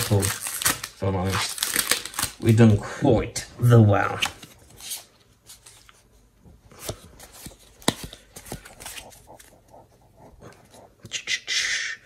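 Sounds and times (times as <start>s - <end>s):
foil wrapper crinkling: 0.0s - 2.6s.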